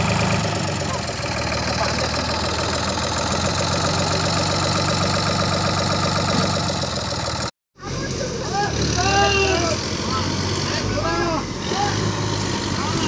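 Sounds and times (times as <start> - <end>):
tractor diesel engine running: 0.0 - 8.0.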